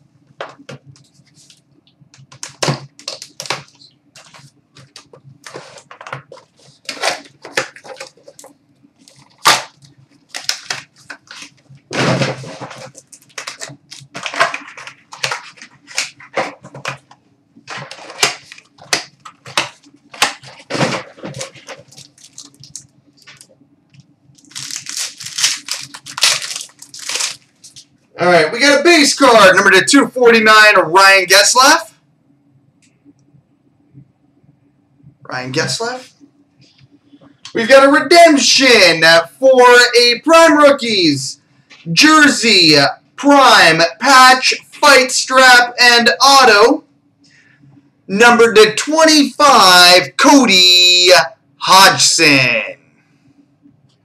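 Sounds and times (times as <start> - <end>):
cardboard and wrapper rustling: 2.4 - 23.5, 24.4 - 27.9.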